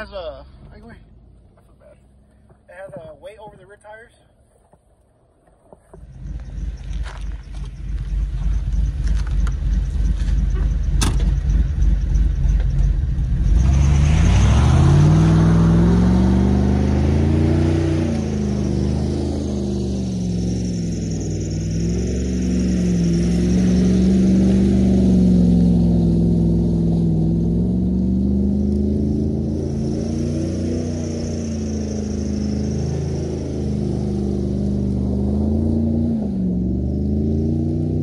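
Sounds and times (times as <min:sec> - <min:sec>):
car engine idling: 0:05.8 - 0:13.8
car engine revving hard: 0:06.2 - 0:38.0.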